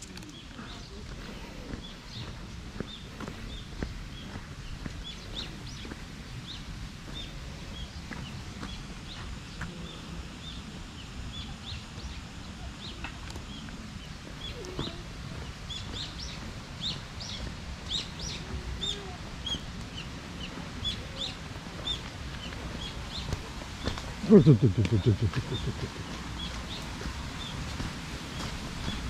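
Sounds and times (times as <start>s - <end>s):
small birds chirping: 0.0s - 29.0s
person speaking: 24.2s - 26.0s.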